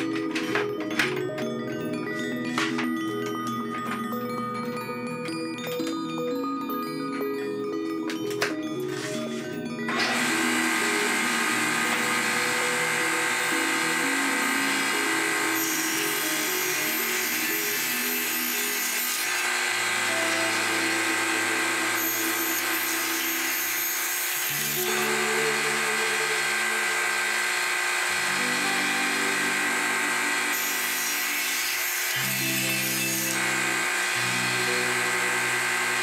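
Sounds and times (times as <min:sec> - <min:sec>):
background music: 0:00.0 - 0:36.0
table saw whining: 0:00.0 - 0:36.0.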